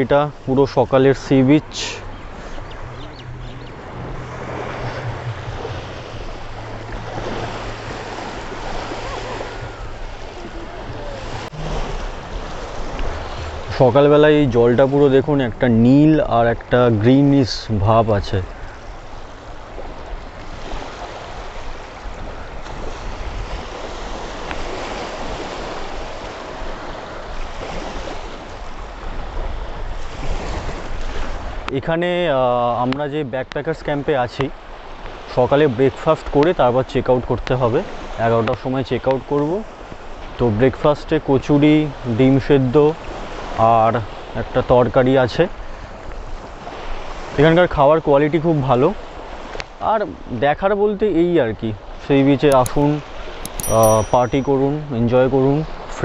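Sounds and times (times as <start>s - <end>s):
wind buffeting microphone: 0.0s - 16.3s, 18.4s - 31.7s
small waves washing onto shore: 0.0s - 56.0s
steady low hum: 2.0s - 13.9s.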